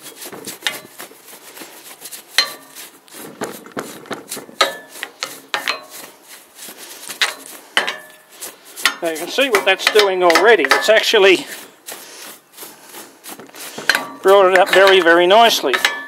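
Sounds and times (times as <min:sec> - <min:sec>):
brush scrubbing metal: 0:00.0 - 0:16.0.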